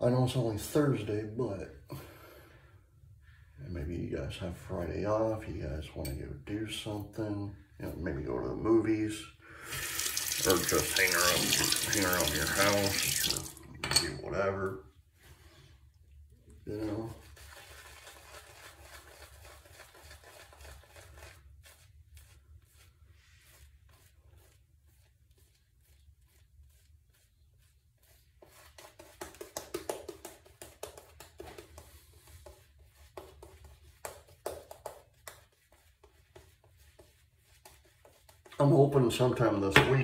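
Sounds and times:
shaving brush strokes on skin: 0:09.8 - 0:13.5, 0:16.7 - 0:39.5.

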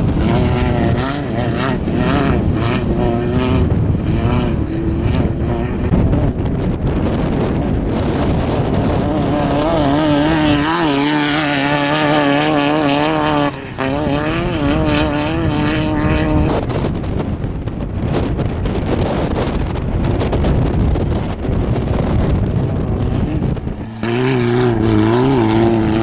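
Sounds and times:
race car engine passing: 0:00.0 - 0:06.2, 0:07.6 - 0:16.6, 0:22.8 - 0:26.0
wind buffeting microphone: 0:00.0 - 0:26.0.

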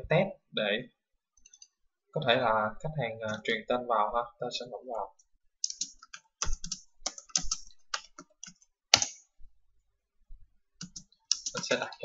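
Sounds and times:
typing on computer keyboard: 0:05.6 - 0:09.2, 0:10.8 - 0:11.8.

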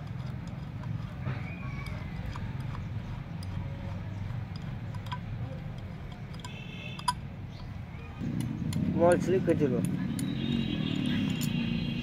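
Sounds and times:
metallic clicks of nut turning: 0:00.0 - 0:10.4, 0:11.0 - 0:11.7.

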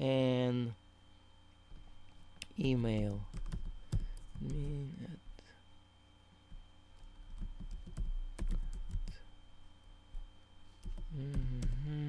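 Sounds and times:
keyboard typing: 0:02.8 - 0:04.8, 0:07.0 - 0:09.2.

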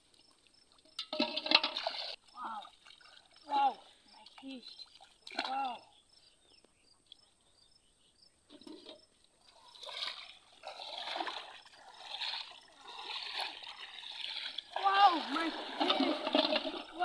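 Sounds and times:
water splashing: 0:01.1 - 0:05.9, 0:09.5 - 0:17.0.

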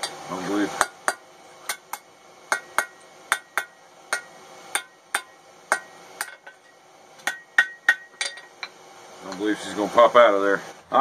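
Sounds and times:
hammer striking metal on anvil: 0:00.8 - 0:08.6.

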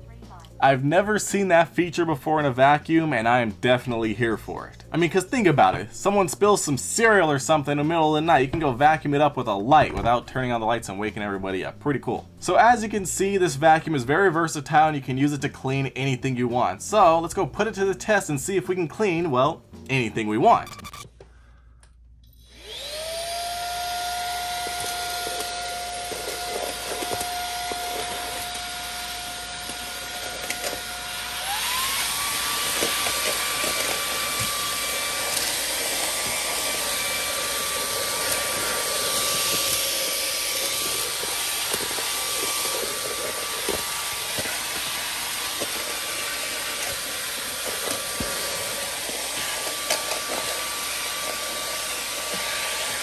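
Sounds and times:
vacuum motor whining: 0:22.3 - 0:53.0.

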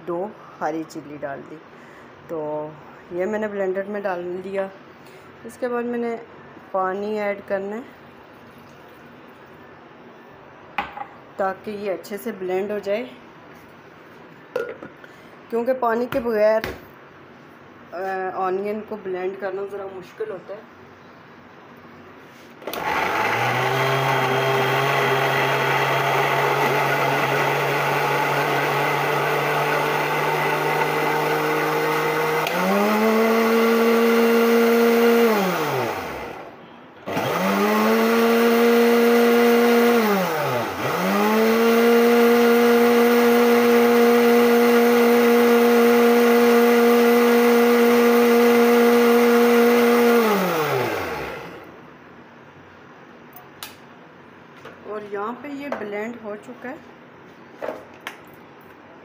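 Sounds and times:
electric blender running: 0:22.6 - 0:36.5, 0:37.1 - 0:51.7.

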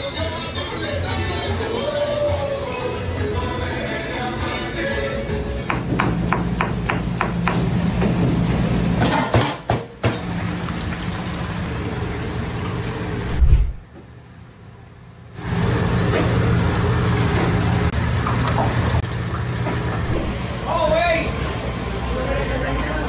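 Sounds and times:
kitchen machinery hum: 0:00.0 - 0:23.0
heavy thud: 0:13.3 - 0:13.8.

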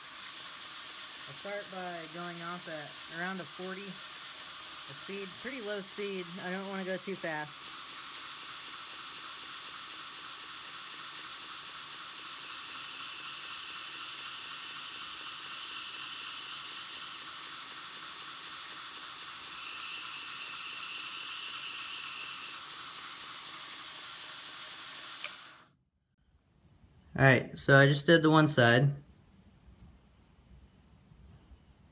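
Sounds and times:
belt sander grinding drill bit: 0:00.0 - 0:25.7.

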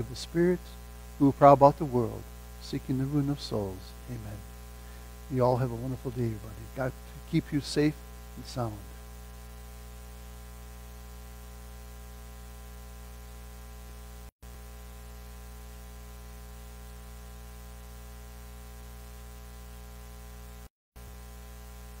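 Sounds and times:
audio hiss: 0:00.0 - 0:22.0
electrical mains hum: 0:00.0 - 0:22.0.

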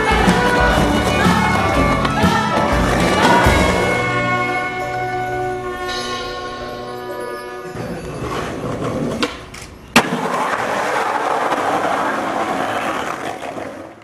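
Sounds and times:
skateboard wheels rolling on stone: 0:07.8 - 0:14.0
skateboard clack: 0:08.2 - 0:14.0.

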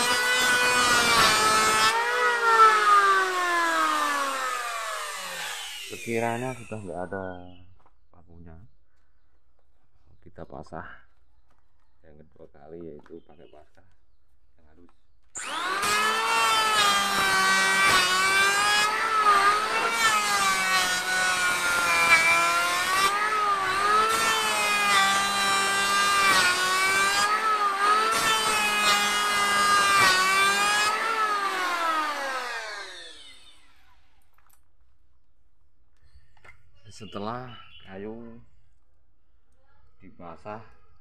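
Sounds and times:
electric planer shaving wood: 0:00.0 - 0:06.9, 0:15.4 - 0:34.1.

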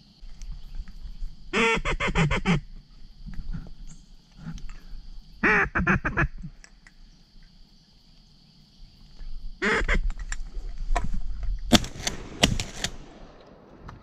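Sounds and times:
ducks quacking: 0:05.4 - 0:06.5, 0:09.6 - 0:10.1.

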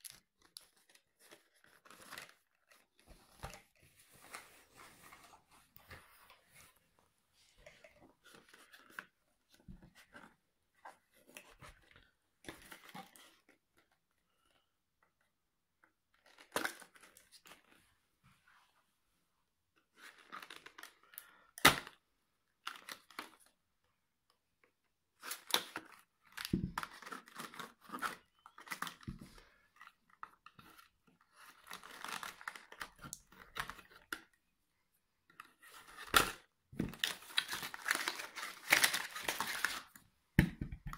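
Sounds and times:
cardboard tearing and rustling: 0:35.7 - 0:40.0.

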